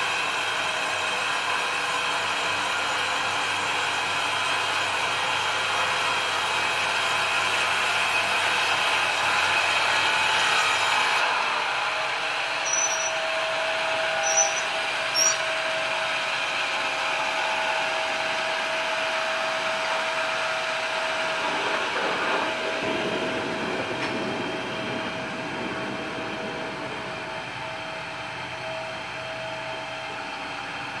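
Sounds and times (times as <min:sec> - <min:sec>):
band sawmill whining: 0:09.6 - 0:31.0.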